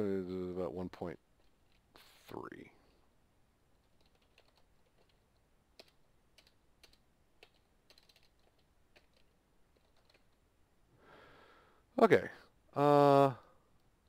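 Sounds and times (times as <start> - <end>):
faint keyboard typing: 1.2 - 2.1, 3.7 - 10.5.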